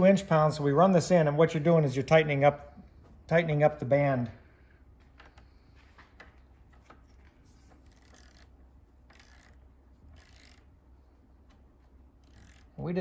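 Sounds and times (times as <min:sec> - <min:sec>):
torque wrench ratcheting: 0:07.8 - 0:10.7, 0:12.2 - 0:12.9.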